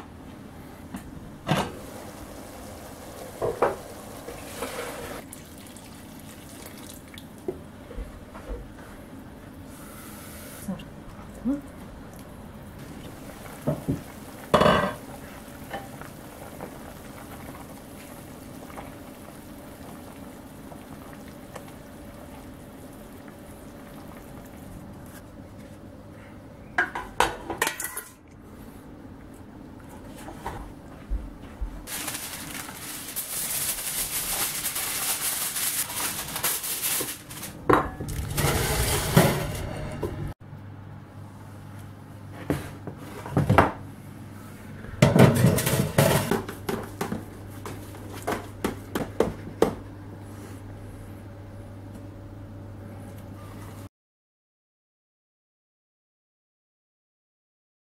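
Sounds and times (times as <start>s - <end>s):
sauce boiling in a pot: 1.7s - 7.9s, 11.8s - 25.9s
metal pots clattering: 14.5s - 15.1s, 26.8s - 28.2s, 37.7s - 40.3s, 45.0s - 46.4s.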